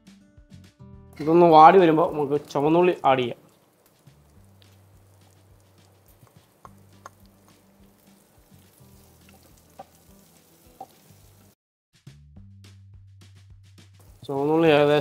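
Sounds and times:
soft background music: 0:00.0 - 0:11.6, 0:13.2 - 0:15.0
shallots sizzling in hot oil: 0:01.2 - 0:11.6, 0:14.0 - 0:15.0.

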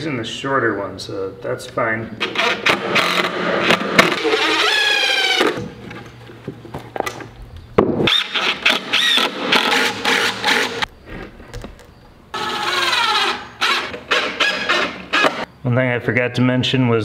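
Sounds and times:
cordless drill driving screws: 0:08.1 - 0:10.8, 0:12.4 - 0:15.4.

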